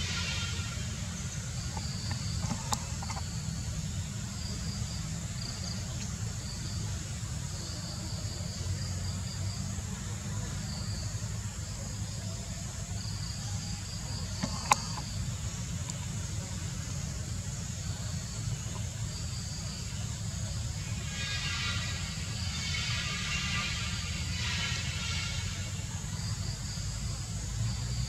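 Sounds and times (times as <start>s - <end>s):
insects buzzing: 0.0s - 28.0s.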